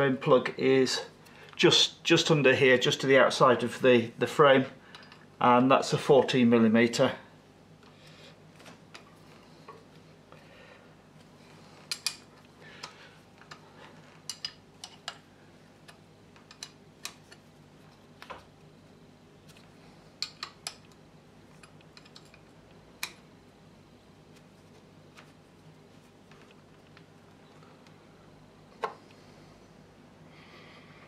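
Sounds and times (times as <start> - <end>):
faint workshop hum: 0.0 - 31.0.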